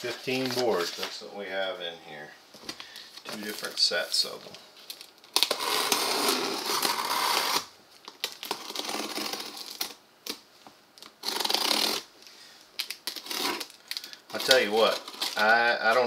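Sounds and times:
blade slitting packing tape: 5.3s - 10.4s, 11.0s - 12.1s, 12.8s - 15.4s.

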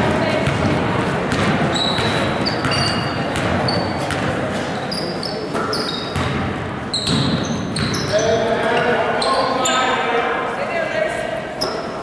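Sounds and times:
crowd chatter: 0.0s - 12.0s
basketball bouncing on hardwood: 0.4s - 4.3s, 6.2s - 6.4s
sneaker squeaks: 1.3s - 9.9s, 11.6s - 12.0s.

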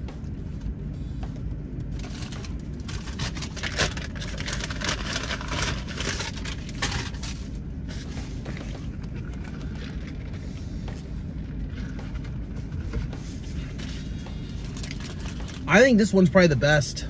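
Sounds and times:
low rumble inside car: 0.0s - 17.0s
paper wrapper crinkling: 2.0s - 10.5s.

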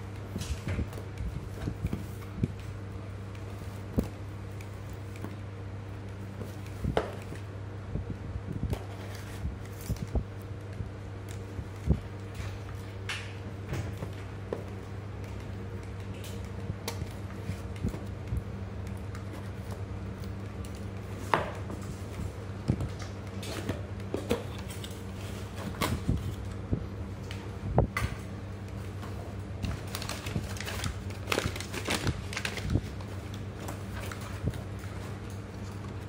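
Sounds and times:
steady low hum: 0.0s - 36.0s
crinkling paper and plastic packing: 8.7s - 13.2s, 28.8s - 36.0s.

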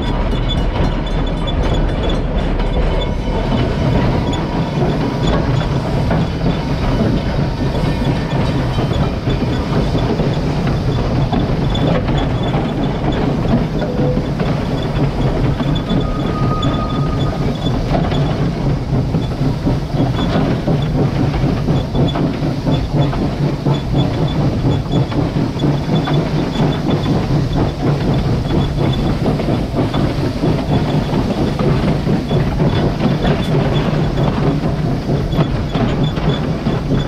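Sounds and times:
clickety-clack of wheels: 0.0s - 37.0s
wheels rumbling on rail: 0.0s - 37.0s
steam hiss: 3.2s - 37.0s.

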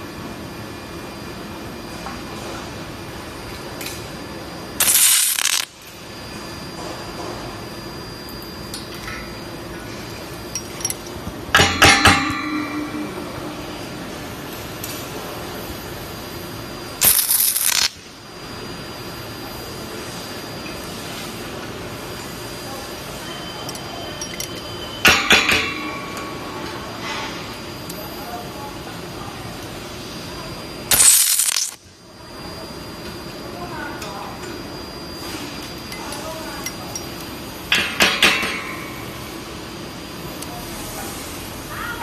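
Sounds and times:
welding arc sizzling: 2.8s - 6.6s, 7.5s - 23.9s, 24.5s - 32.8s.

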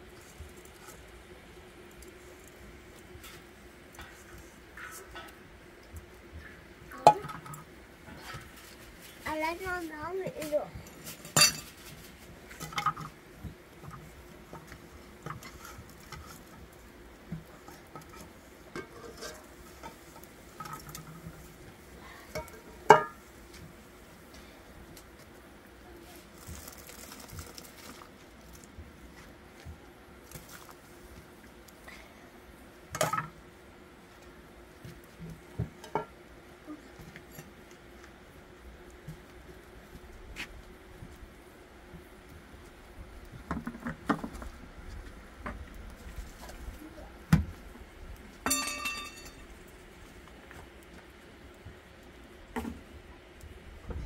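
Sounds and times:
rustling: 25.9s - 31.3s.

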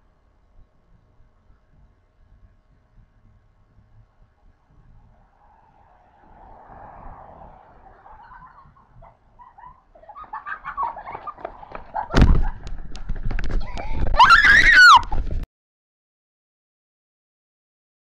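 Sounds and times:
children shouting: 5.5s - 11.5s, 13.6s - 15.1s
high-pitched yell: 13.6s - 15.1s.

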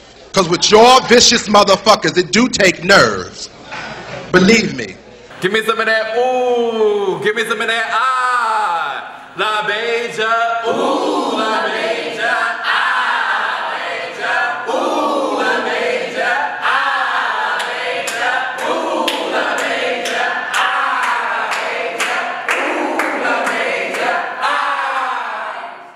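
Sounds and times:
group singing and chanting: 9.2s - 25.9s
hand claps: 17.6s - 24.2s.

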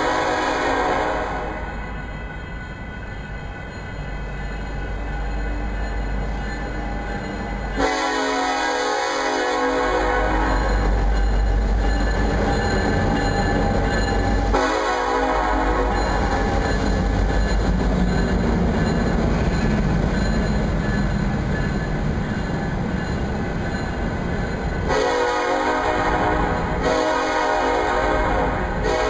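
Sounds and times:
train air horn blasts: 0.0s - 1.7s, 7.8s - 10.9s, 14.4s - 16.6s, 24.9s - 29.0s
freight train rumbling: 0.0s - 29.0s.

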